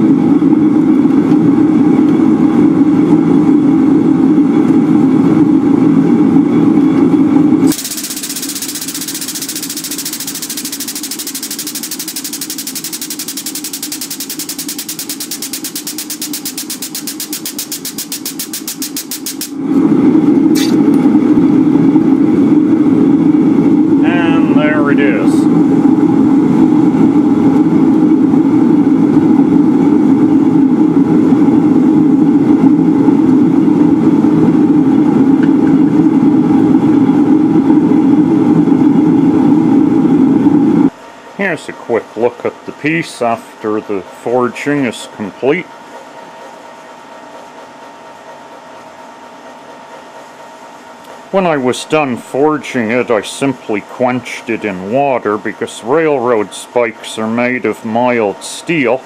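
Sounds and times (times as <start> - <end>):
machine hum: 7.6 - 24.7
power hammer beating: 7.7 - 19.6.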